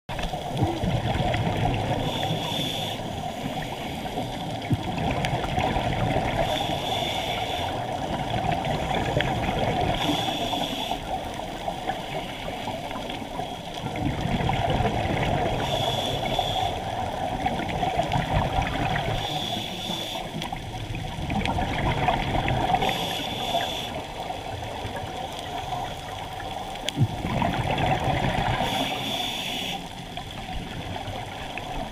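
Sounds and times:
bubbling gurgle of exhaled air: 0.1s - 31.9s
regulator hiss on inhale: 1.9s - 4.4s, 6.3s - 8.0s, 9.9s - 13.0s, 15.5s - 17.0s, 19.0s - 20.6s, 22.8s - 24.3s, 28.5s - 30.1s.

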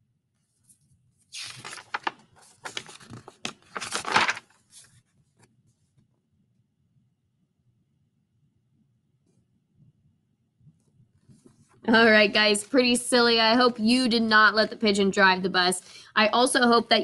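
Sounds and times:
book pages flipping: 0.4s - 6.1s.

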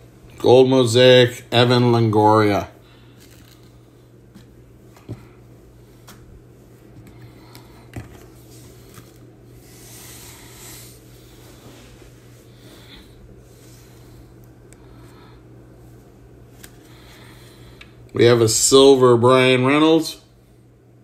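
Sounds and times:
steady low hum: 0.0s - 21.0s
trading cards rustling: 3.1s - 3.8s, 7.0s - 9.3s.

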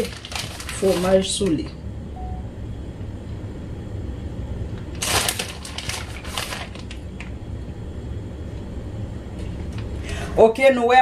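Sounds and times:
cheese rustling: 0.0s - 1.6s, 5.0s - 7.0s
steady low hum: 0.0s - 11.0s.

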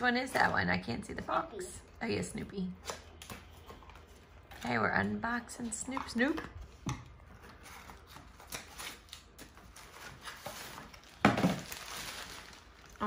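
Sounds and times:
cardboard and plastic rustling: 3.1s - 13.0s
plastic crinkling: 6.0s - 13.0s.

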